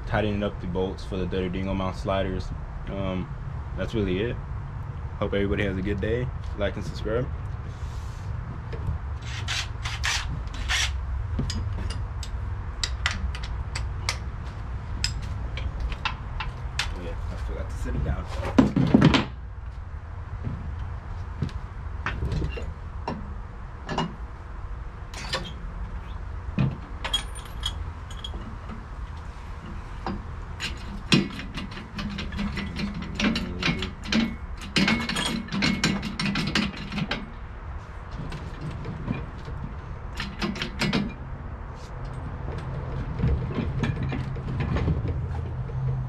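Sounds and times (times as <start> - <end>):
metal clicks and clanks of tools: 10.6 - 14.3, 25.1 - 25.6, 27.0 - 37.4, 38.3 - 41.2.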